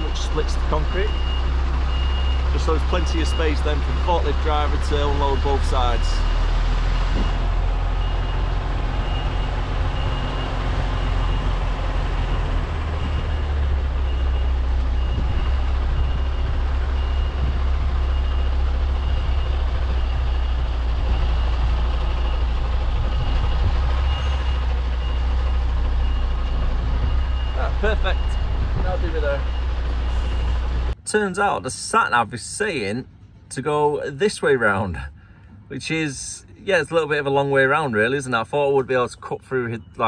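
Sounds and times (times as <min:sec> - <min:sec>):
reversing alarm beeps: 0:00.0 - 0:06.4, 0:08.0 - 0:30.6
diesel engine rumbling: 0:00.0 - 0:40.0.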